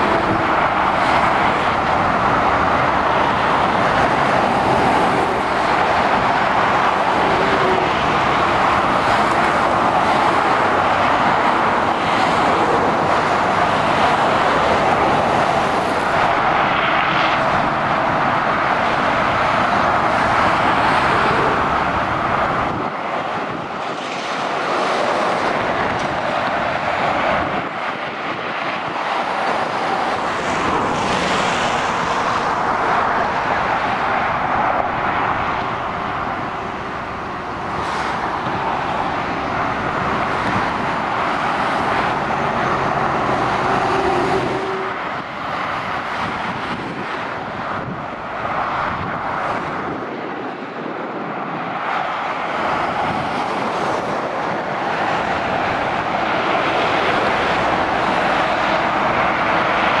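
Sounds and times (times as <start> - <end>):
vehicles passing on motorway: 0.0 - 60.0.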